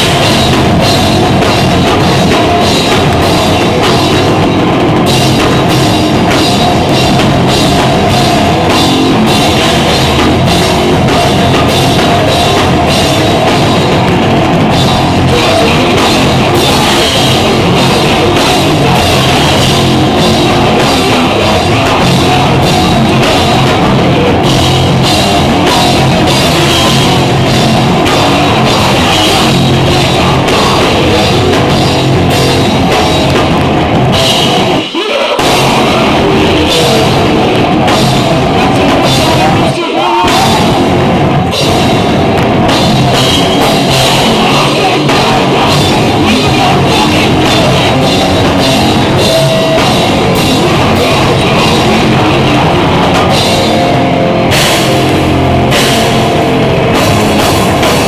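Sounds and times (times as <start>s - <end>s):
bass guitar: 0.0s - 58.0s
distorted electric guitar: 0.0s - 58.0s
pounding drum kit: 0.0s - 58.0s
person singing into microphone: 5.4s - 41.9s, 43.1s - 54.6s.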